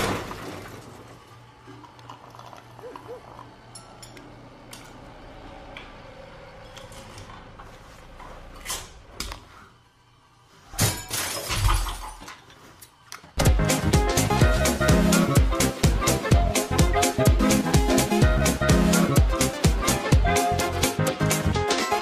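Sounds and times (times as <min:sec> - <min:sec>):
metal parts clattering: 0:10.8 - 0:12.6.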